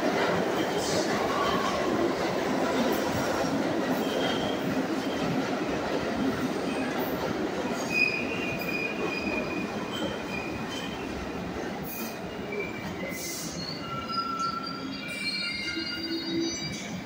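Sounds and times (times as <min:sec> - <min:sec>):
subway train wheels rumbling: 0:00.0 - 0:17.0
metallic wheel squeals: 0:12.0 - 0:16.9.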